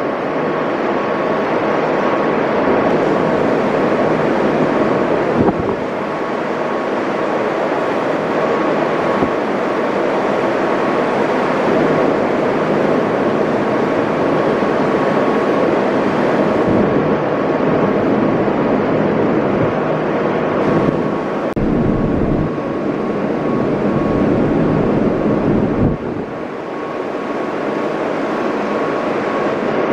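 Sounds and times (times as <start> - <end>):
ferry engine drone: 0.0 - 29.9
wind buffeting microphone: 2.6 - 7.0, 8.4 - 27.1.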